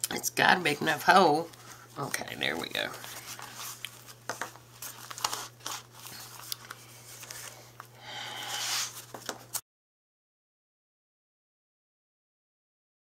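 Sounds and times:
paper pages rustling: 1.5 - 9.6.

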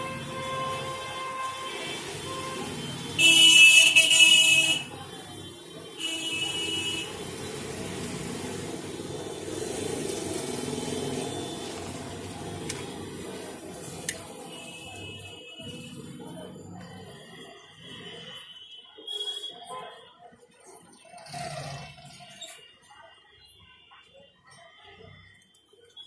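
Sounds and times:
vehicle horn honking: 0.0 - 4.9, 6.0 - 7.2
traffic noise: 0.0 - 26.0.

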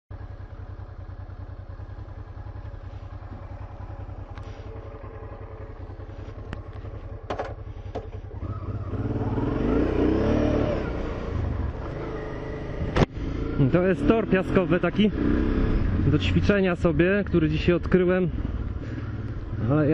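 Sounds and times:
motorcycle engine revving: 0.2 - 19.9.

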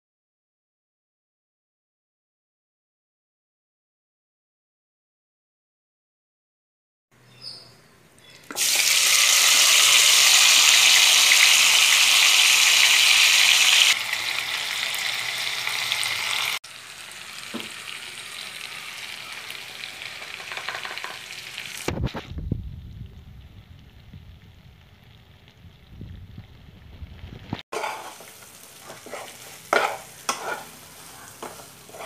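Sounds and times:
chicken sizzling in hot oil: 8.5 - 22.5, 23.9 - 32.0.

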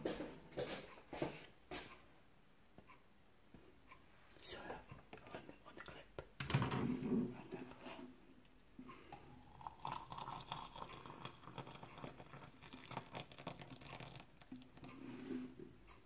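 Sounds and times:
water pouring into mug: 9.2 - 14.8.

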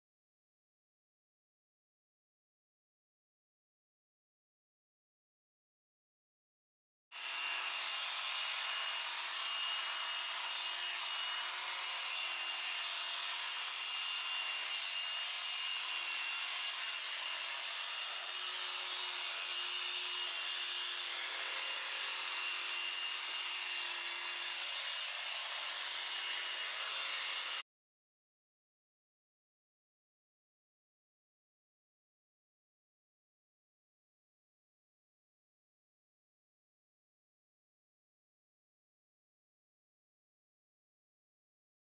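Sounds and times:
electric sheep shears whining: 7.2 - 27.6.

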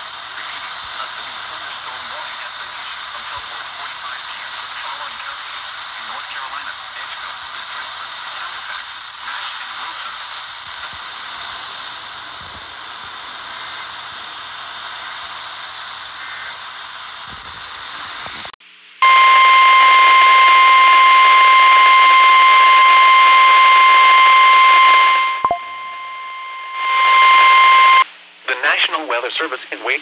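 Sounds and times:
radio static hiss: 0.0 - 30.0
steady warning alarm beep: 19.0 - 28.0.

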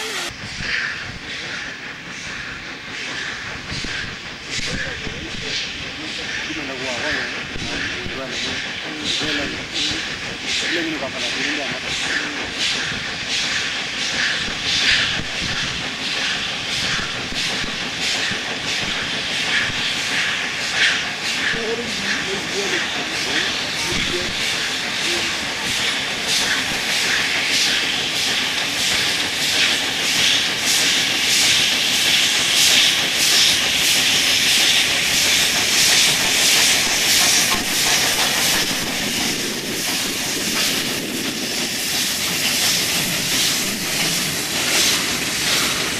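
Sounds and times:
steam hissing: 0.0 - 45.9
steam locomotive chuffing: 0.0 - 45.9.

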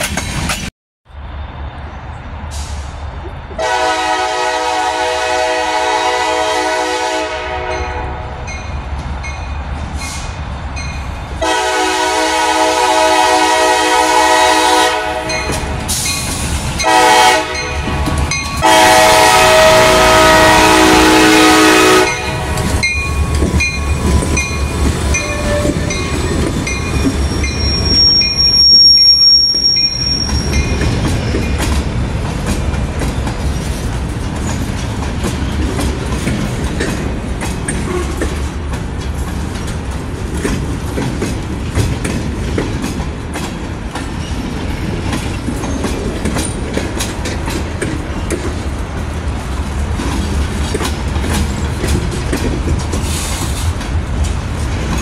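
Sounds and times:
diesel locomotives rumbling: 0.0 - 55.0
train horn blast: 3.6 - 8.5, 11.4 - 15.6, 16.8 - 22.8, 25.1 - 26.1, 37.8 - 38.3
wheels clacking over rail joints: 21.8 - 28.7, 29.6 - 55.0
wheel squeal: 25.1 - 31.3.

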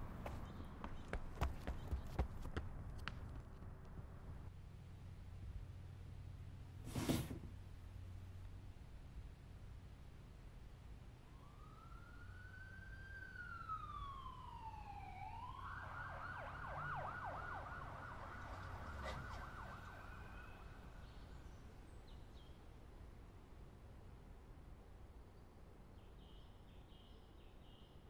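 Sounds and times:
emergency vehicle siren: 11.2 - 21.4.

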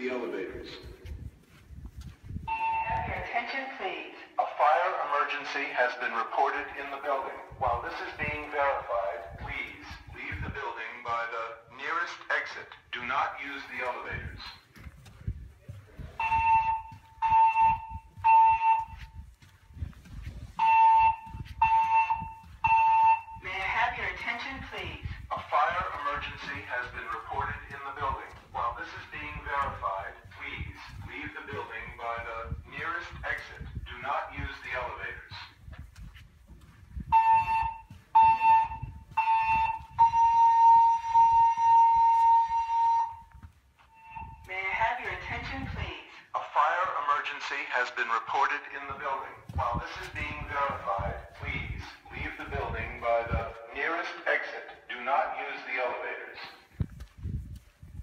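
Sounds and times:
recorded evacuation message: 0.0 - 1.2, 2.5 - 14.7, 15.3 - 19.2, 20.6 - 35.6, 37.1 - 43.2, 43.9 - 56.7
fire alarm beeps: 2.4 - 3.3, 16.2 - 19.3, 20.6 - 23.4, 37.1 - 44.5
continuous alarm tone: 2.4 - 4.2, 16.0 - 19.4, 20.4 - 35.3, 37.0 - 45.8.

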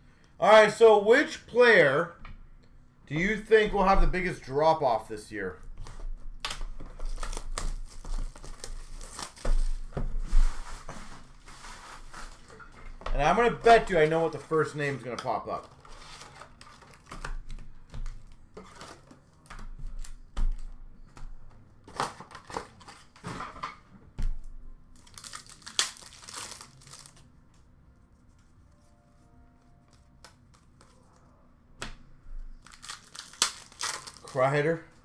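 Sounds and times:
card wrappers crinkling and tearing: 5.8 - 9.9, 25.0 - 27.3, 32.6 - 34.8.

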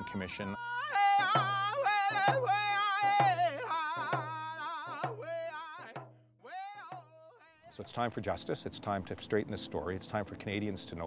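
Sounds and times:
man singing: 0.0 - 7.9
drum beating: 1.0 - 6.2, 6.9 - 7.2.

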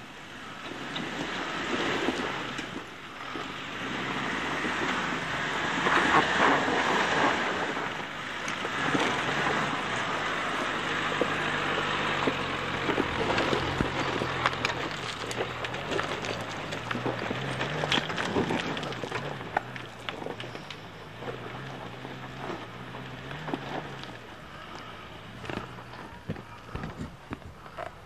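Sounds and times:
car engine running at low revs: 0.0 - 28.0
tyres crunching over rocks: 8.4 - 28.0
sharp cracks and pops: 12.9 - 20.8.

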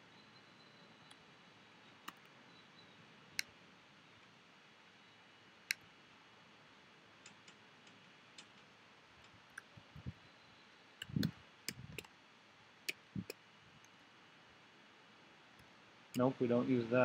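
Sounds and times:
computer mouse and keyboard clicks: 11.0 - 12.1.

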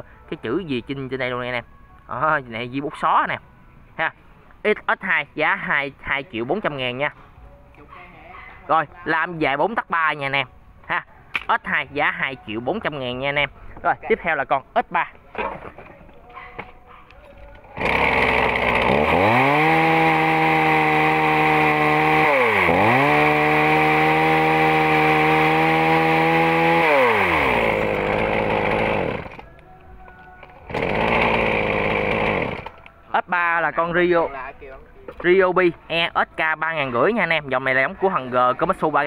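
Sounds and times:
chainsaw engine revving: 17.8 - 29.5, 30.7 - 32.8.

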